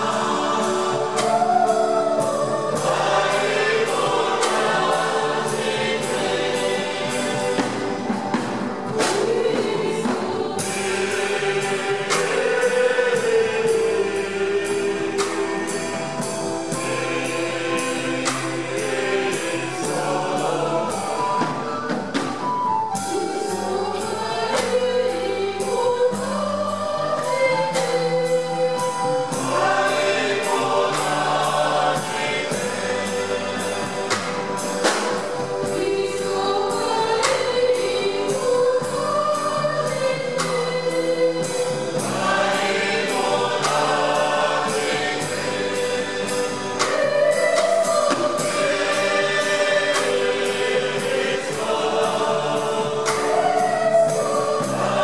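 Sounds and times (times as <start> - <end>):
choir singing a hymn: 0.0 - 55.0
steady percussive beat: 0.0 - 55.0.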